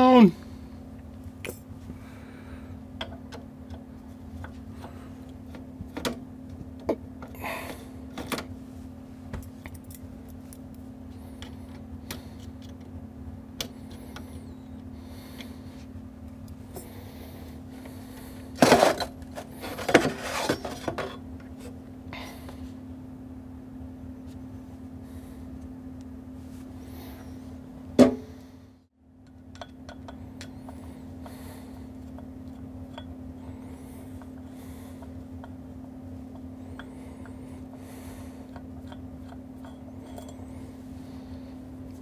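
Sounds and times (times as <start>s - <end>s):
steady low hum: 0.0s - 42.0s
metal parts clinking and tapping: 38.5s - 40.4s.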